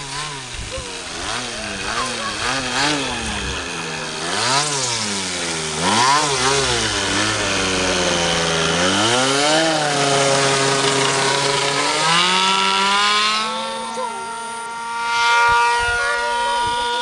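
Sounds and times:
model plane motor buzzing: 0.0 - 17.0.

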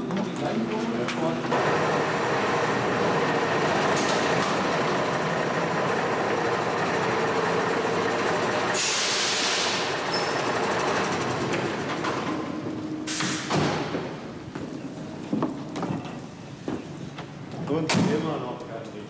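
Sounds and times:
diesel engine running: 0.0 - 17.6
air brake hiss: 8.8 - 9.9.

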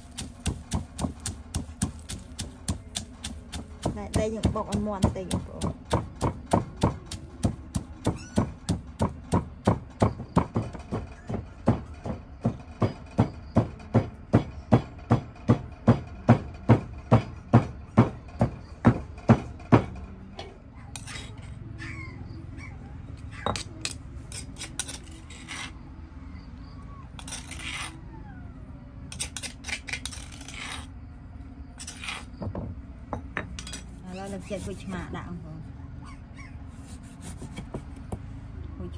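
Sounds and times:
rhythmic knocking of food preparation: 0.0 - 20.6, 37.0 - 38.3
utensils and dishes clinking: 33.2 - 34.1.

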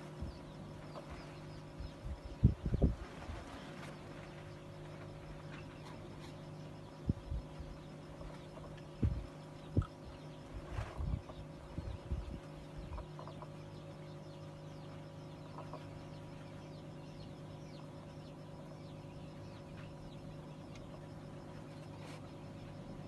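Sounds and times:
steady hum: 0.0 - 23.0
chickens clucking: 10.7 - 13.9, 15.4 - 16.4.

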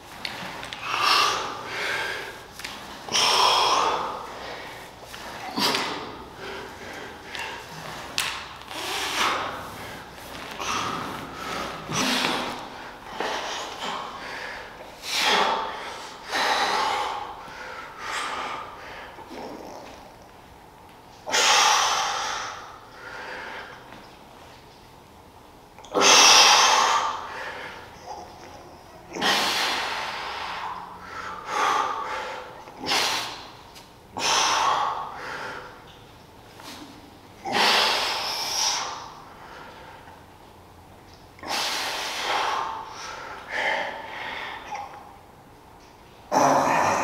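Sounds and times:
man breathing hard: 0.4 - 19.9, 21.3 - 24.0, 26.0 - 28.3, 29.1 - 36.0, 36.8 - 40.3, 41.4 - 45.2
man exhaling forcefully: 3.1 - 7.6, 8.7 - 19.4, 29.2 - 33.5, 37.4 - 39.8, 41.4 - 44.8.

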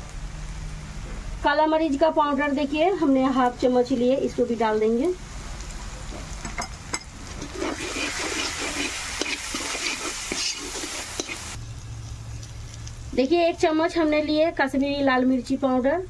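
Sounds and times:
spices sizzling in oil: 0.0 - 15.8
spatula scraping metal pan: 7.4 - 11.6.

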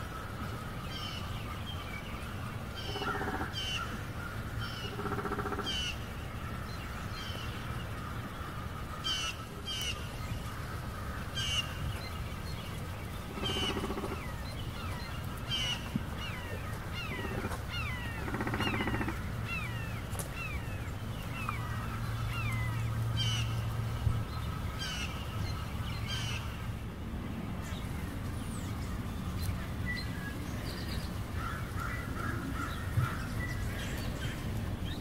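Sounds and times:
low steady rumble: 0.0 - 35.0
chattering bird calls: 2.6 - 6.0, 13.1 - 20.7.

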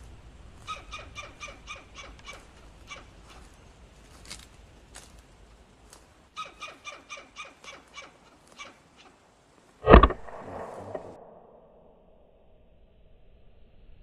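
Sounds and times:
squirrel barking: 0.6 - 3.5, 6.4 - 9.2
sharp clicks: 9.8 - 11.0.

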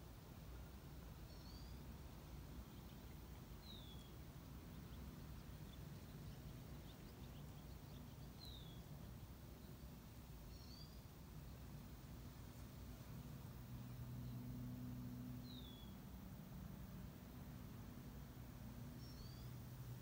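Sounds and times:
bird chirping: 1.2 - 11.8, 13.8 - 16.0, 18.9 - 19.8.

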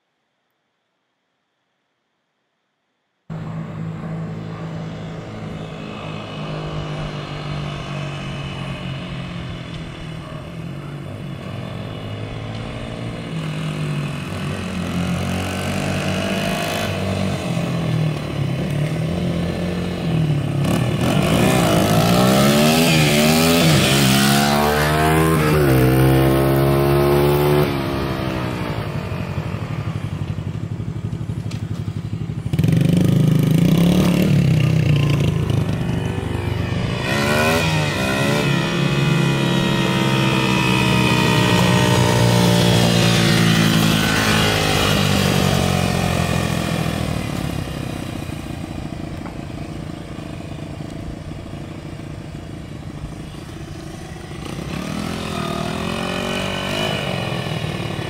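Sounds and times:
dirt bike engines revving: 3.3 - 58.0.

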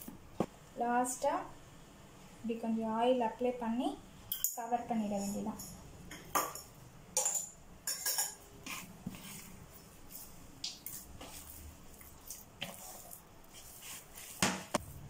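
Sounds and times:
hands kneading dough in a bowl: 8.6 - 15.0.

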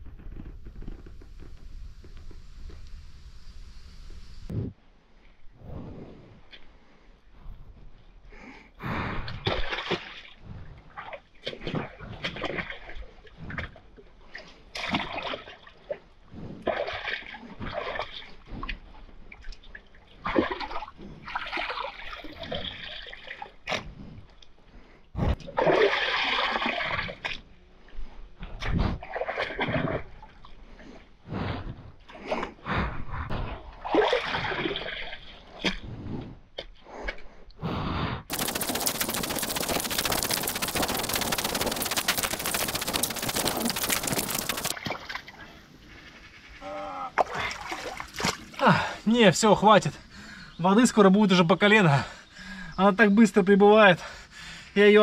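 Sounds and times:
shovel splashing in wet clay: 38.3 - 45.3.

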